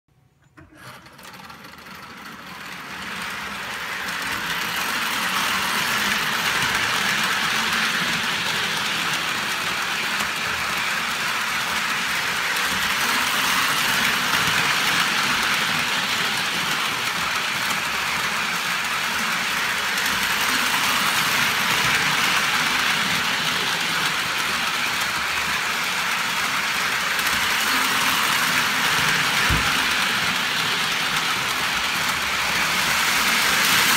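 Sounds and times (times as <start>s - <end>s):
model train motor and wheels whirring: 0.4s - 33.9s.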